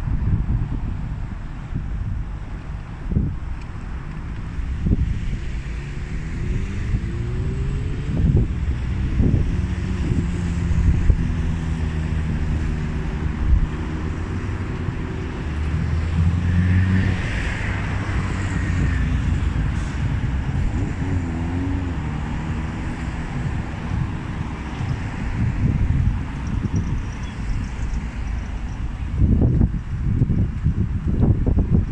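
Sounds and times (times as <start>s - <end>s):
hiss of wheels on rail: 19.6s - 20.4s.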